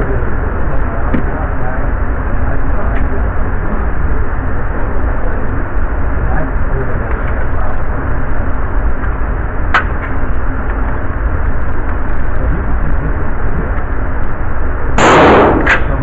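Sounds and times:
shooting range noise: 14.9 - 16.0
gunshot: 15.0 - 16.0.

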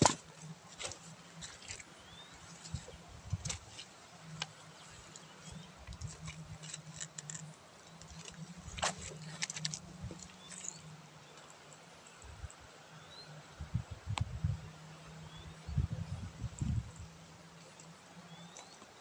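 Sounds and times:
plants rustling underfoot: 0.0 - 10.8.

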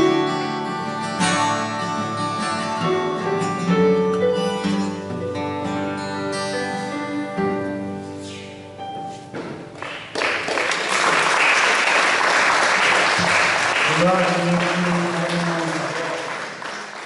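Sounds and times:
acoustic guitar and piano chords: 0.0 - 10.4
audience applause: 9.8 - 17.0.

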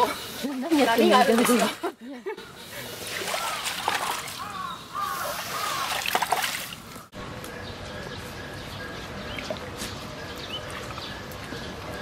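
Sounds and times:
outdoor background noise: 0.0 - 12.0
puddle water sloshing and splashing: 3.1 - 4.5, 5.4 - 7.0.

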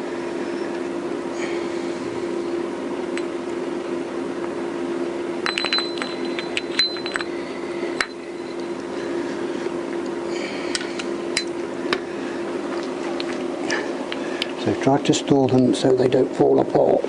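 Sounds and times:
steady low hum: 0.0 - 17.0
metal gears clinking: 5.5 - 7.3.

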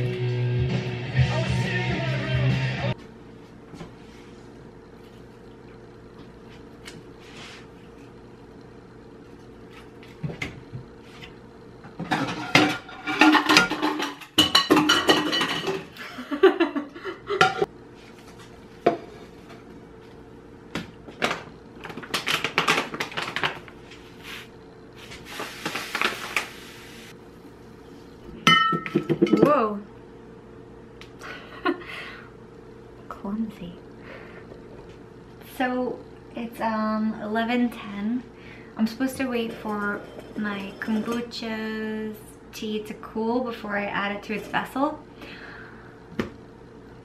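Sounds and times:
steady low hum: 0.0 - 47.0
kitchenware clattering: 12.0 - 16.0, 17.3 - 17.7, 28.4 - 29.6, 39.1 - 41.4
sugar pouring hiss: 24.2 - 27.2.

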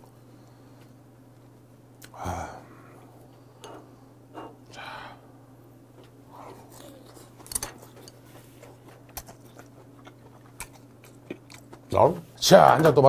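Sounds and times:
short vocal sound: 2.0 - 2.9
chewing noises: 6.0 - 12.0.

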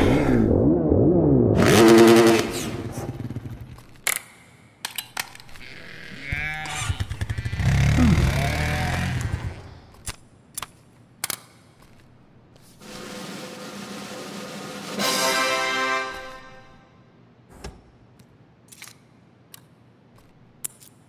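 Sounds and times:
deeper engine running and revving: 0.0 - 3.6, 6.6 - 9.8
small engine revving: 1.6 - 3.6, 6.1 - 9.8
models clicking on a tabletop: 18.2 - 21.0.

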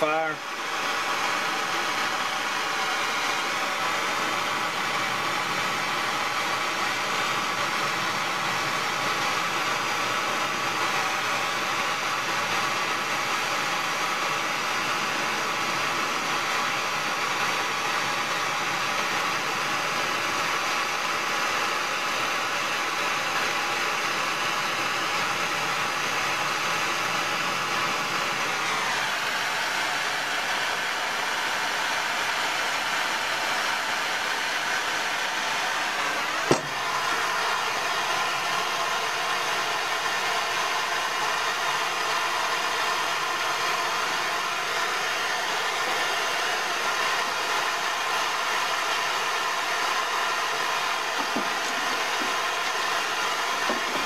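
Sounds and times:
propane torch hissing: 0.0 - 54.0.

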